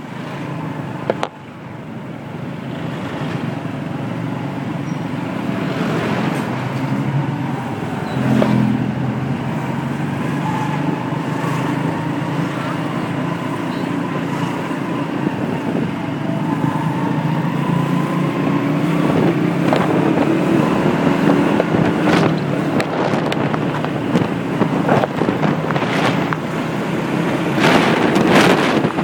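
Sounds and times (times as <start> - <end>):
road noise: 0.0 - 29.0
wind buffeting microphone: 6.1 - 29.0.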